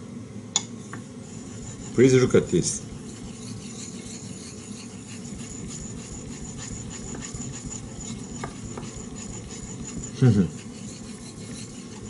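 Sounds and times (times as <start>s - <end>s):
knife grinding on whetstone: 1.2s - 12.0s.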